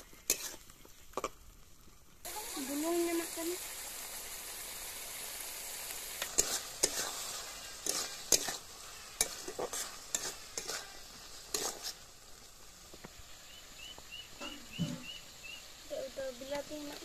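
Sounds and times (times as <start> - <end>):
metal spatula scraping a pan: 0.0 - 1.3, 6.2 - 12.2
frying sizzle: 0.0 - 17.0.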